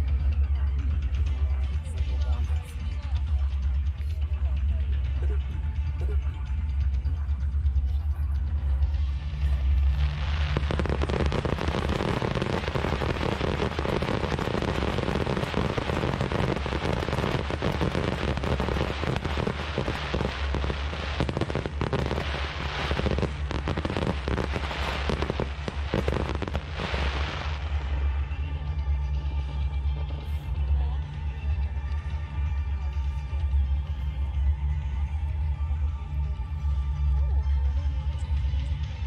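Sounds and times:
low rumble: 0.0 - 35.9
fireworks crackling: 9.3 - 28.5
sharp firework cracks: 10.0 - 28.1.

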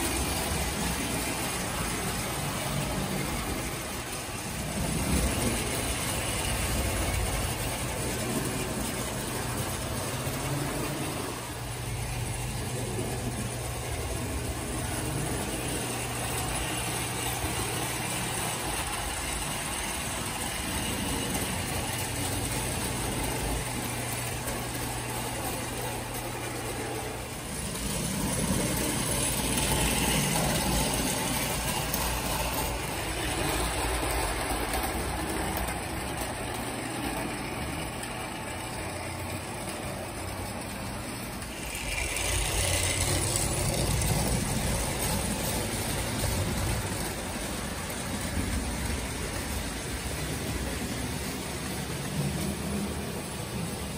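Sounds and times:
toy train rumbling on track: 0.0 - 53.9.

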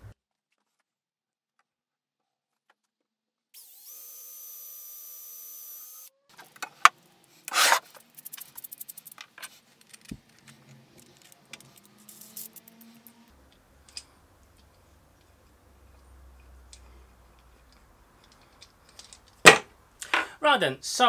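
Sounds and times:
cordless drill boring wood: 3.6 - 6.1.

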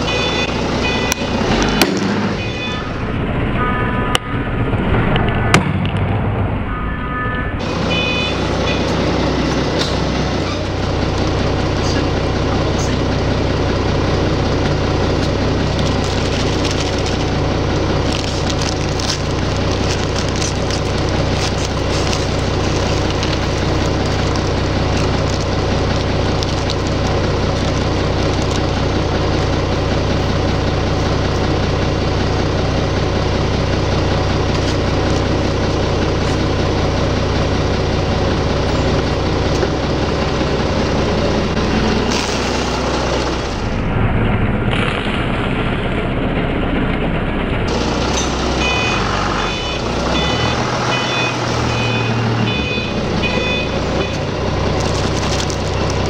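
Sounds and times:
short beeps: 0.0 - 1.3, 2.4 - 2.9, 6.7 - 9.0, 48.6 - 54.2
forklift engine idling: 0.0 - 6.9, 7.5 - 56.0
crackers rattling on concrete: 15.8 - 28.6
plastic snack bag crinkling: 15.9 - 27.0, 54.8 - 56.0.

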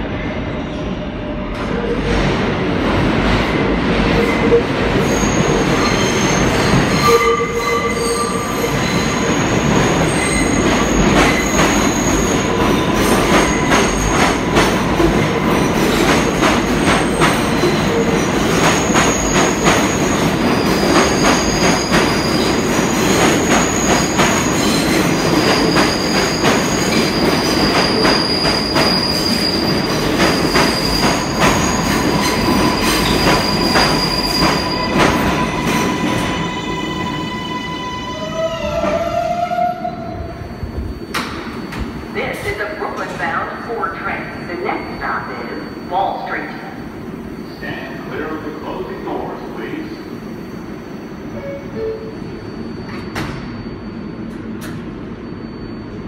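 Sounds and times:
high-pitched wheel squeal: 21.2 - 41.3.

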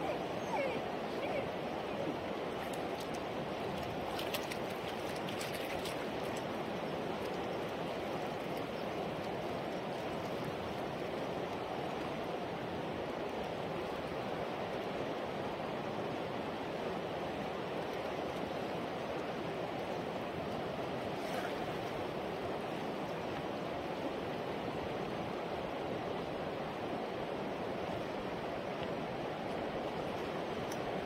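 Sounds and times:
river water rushing: 0.0 - 31.0.

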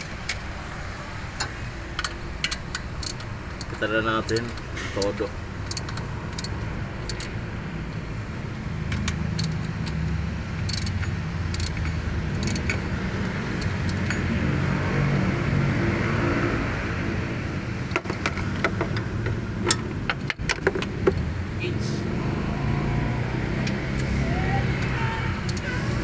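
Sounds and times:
hand tools clicking on metal: 1.4 - 7.4, 8.9 - 14.2, 24.8 - 25.8.

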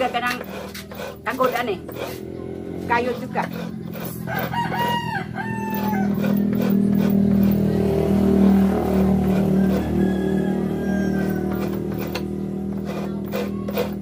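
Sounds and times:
rooster crowing: 4.1 - 6.6, 9.1 - 12.0.

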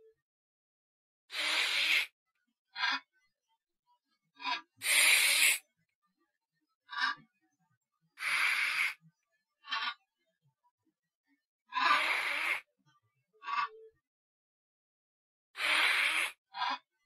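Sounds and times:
breathy hissing bursts: 1.3 - 2.0, 4.8 - 5.6, 8.2 - 8.9, 15.6 - 16.3.

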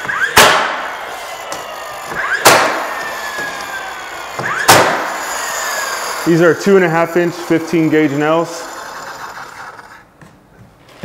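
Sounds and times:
nail gun firing: 0.0 - 6.3.

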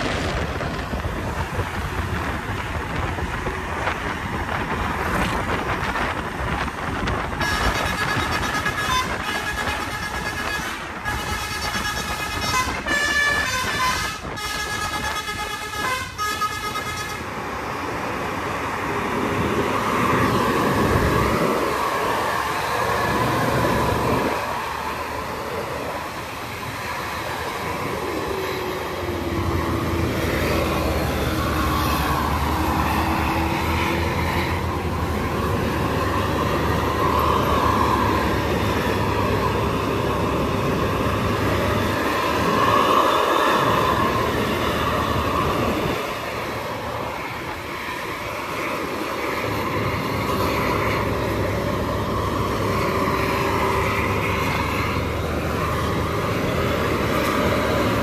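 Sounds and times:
heavy bus engine under load: 0.0 - 58.0
bus horn blasts on changing notes: 7.4 - 17.3.

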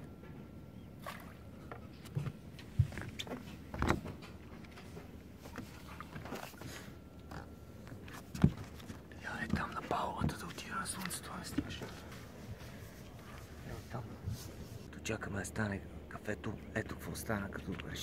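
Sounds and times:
handling knocks and rustles: 1.7 - 14.9.

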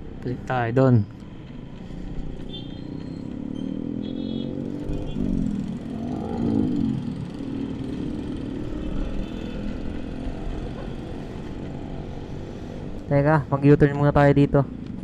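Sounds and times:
motorcycle engine accelerating: 2.7 - 13.0.

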